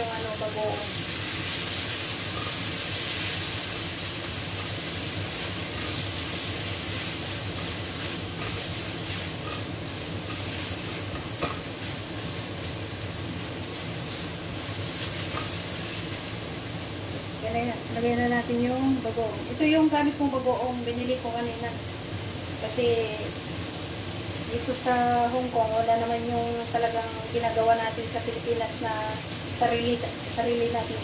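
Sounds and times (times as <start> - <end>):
vegetables sizzling in hot oil: 0.0 - 31.0
spatula scraping a wok: 0.7 - 12.2, 13.7 - 16.2.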